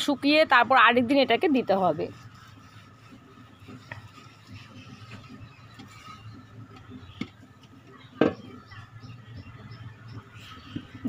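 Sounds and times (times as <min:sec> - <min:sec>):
clay pot knocking on cement floor: 0:08.2 - 0:08.6.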